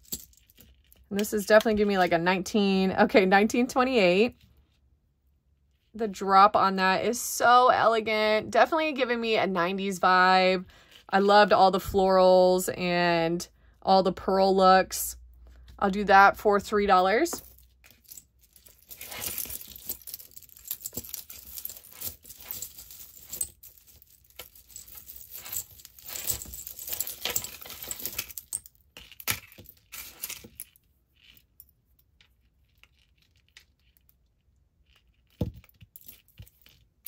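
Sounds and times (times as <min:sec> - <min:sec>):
jewelry clinking and jangling: 0:00.0 - 0:02.2, 0:16.9 - 0:37.0.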